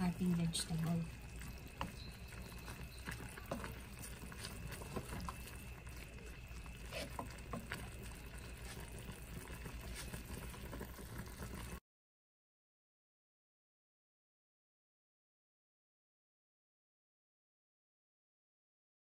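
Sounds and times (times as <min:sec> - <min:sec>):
broth simmering with bubbling pops: 0:00.0 - 0:11.8
wooden spatula stirring and tapping: 0:00.0 - 0:11.8.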